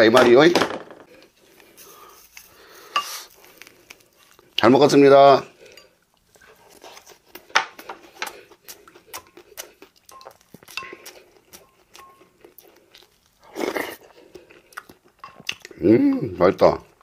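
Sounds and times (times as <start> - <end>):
chewing with wet mouth clicks: 5.6 - 16.2
slurping stew from spoon: 13.4 - 14.8.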